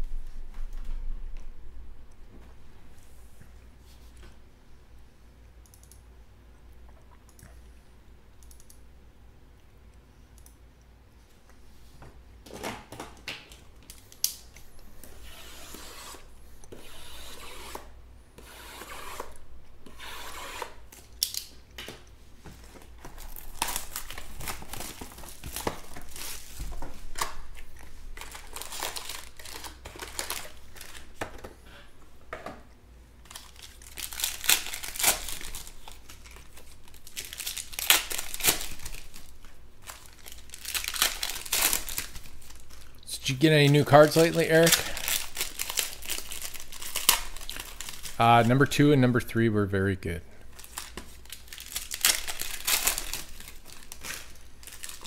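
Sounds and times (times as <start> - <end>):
wrappers crinkling and ripping: 22.6 - 31.2, 33.2 - 48.7, 50.5 - 55.0.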